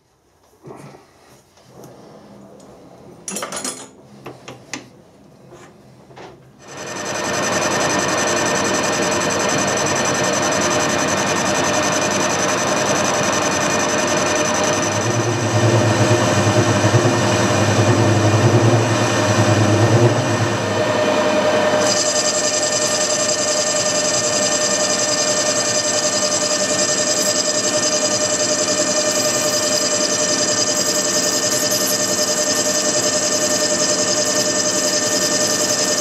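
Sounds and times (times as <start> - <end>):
lathe cutting steel: 6.6 - 36.0
low hum: 14.5 - 21.8.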